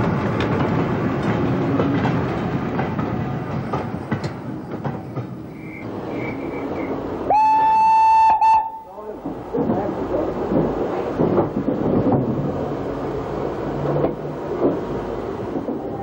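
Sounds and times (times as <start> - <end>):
steam locomotive whistle: 7.3 - 8.9.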